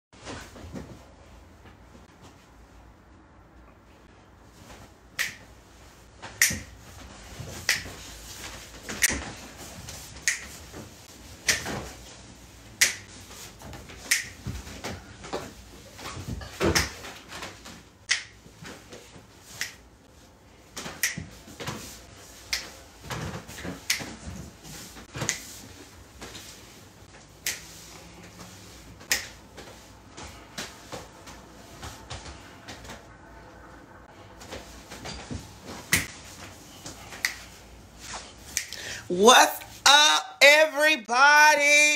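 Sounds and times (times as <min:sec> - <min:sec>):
fingers snapping: 0:10.2 - 0:10.5, 0:14.1 - 0:14.3, 0:21.0 - 0:21.2, 0:38.5 - 0:38.8.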